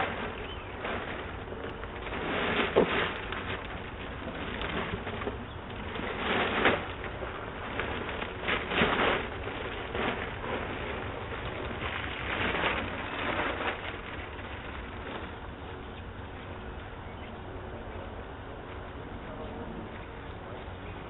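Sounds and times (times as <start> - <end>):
plastic bag rustling: 0.0 - 16.7
low background noise: 0.0 - 21.0.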